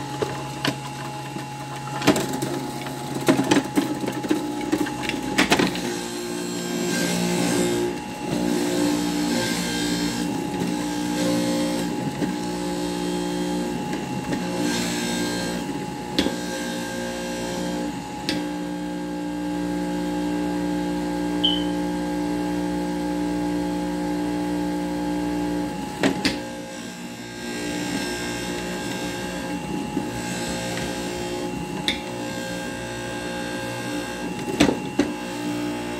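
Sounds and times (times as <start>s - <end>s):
juicer motor humming: 0.0s - 35.9s
juicer sharp click: 21.4s - 21.8s.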